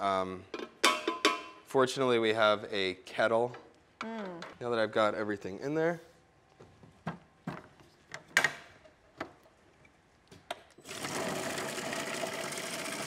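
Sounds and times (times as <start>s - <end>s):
food processor motor chopping: 10.8s - 13.0s.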